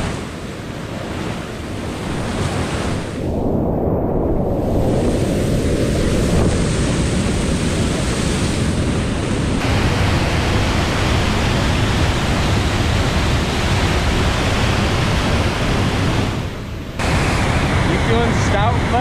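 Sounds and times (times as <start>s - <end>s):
whitewater rushing over waterfall: 7.8s - 19.0s.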